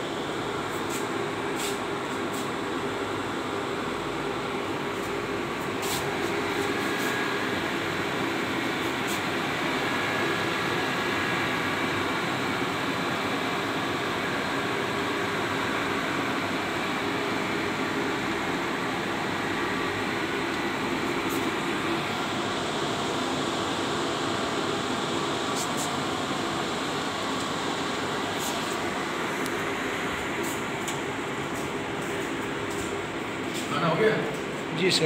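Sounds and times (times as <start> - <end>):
cooling fans whirring: 0.0 - 35.0.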